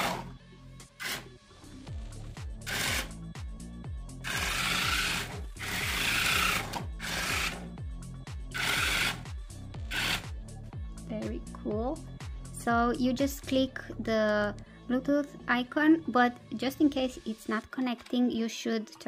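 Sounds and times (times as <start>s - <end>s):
background music with thudding beat: 0.0s - 18.4s
toy robot motors whirring: 2.7s - 3.1s, 4.3s - 7.6s, 8.6s - 9.2s.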